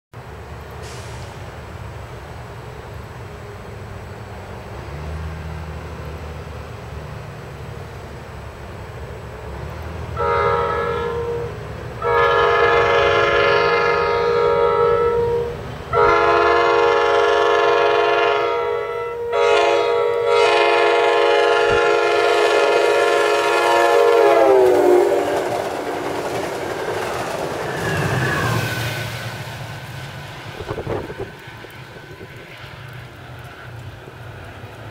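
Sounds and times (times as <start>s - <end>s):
train coaches rumbling on rails: 0.2s - 34.9s
train air horn blasts: 10.2s - 25.6s.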